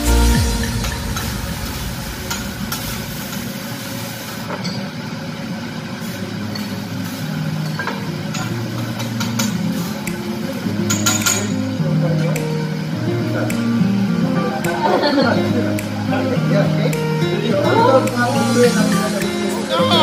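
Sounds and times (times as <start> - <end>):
steady low hum: 0.0 - 4.4
rice sizzling on a griddle: 2.8 - 11.5.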